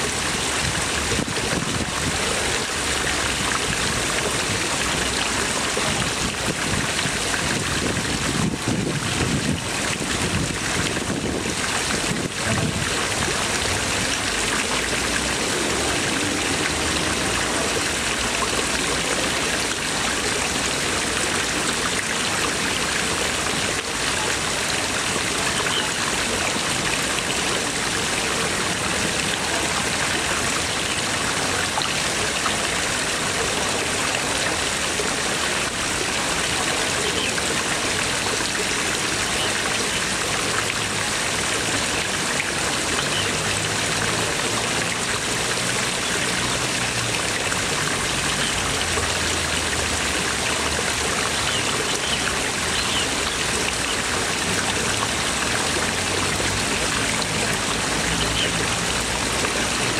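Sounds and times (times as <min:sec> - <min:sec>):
water jets splashing into pond: 0:00.0 - 0:59.9.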